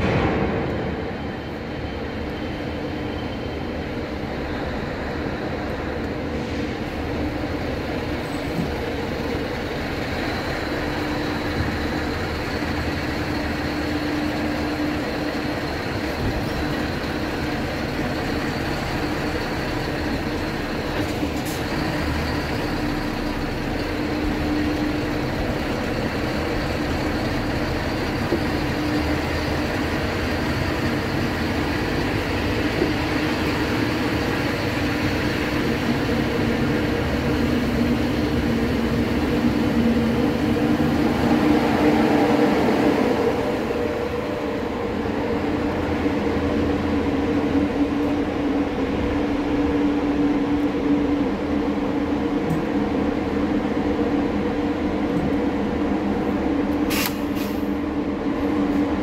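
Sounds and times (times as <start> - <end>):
truck engine drone: 0.0 - 59.0
sharp click: 56.9 - 57.6.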